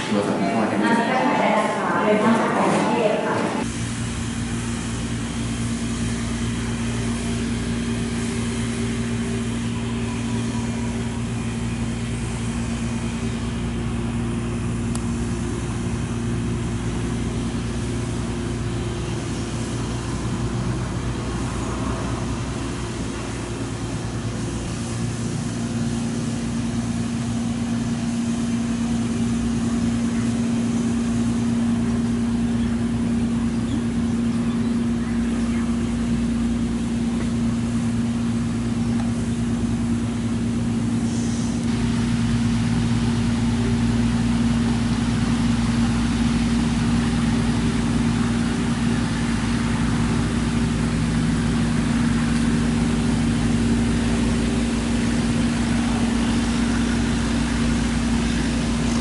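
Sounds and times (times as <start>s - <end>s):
motor humming steadily: 0.0s - 59.0s.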